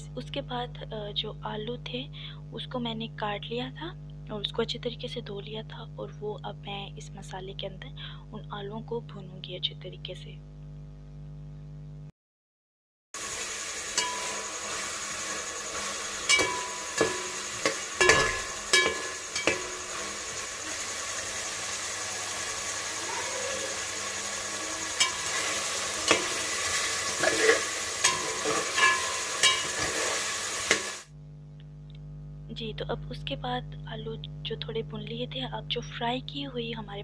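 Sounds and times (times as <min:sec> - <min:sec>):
potatoes sizzling in oil: 0:13.2 - 0:31.1
metal spatula clinking against pot: 0:14.0 - 0:14.8, 0:15.7 - 0:19.8, 0:25.0 - 0:25.4, 0:27.2 - 0:29.9.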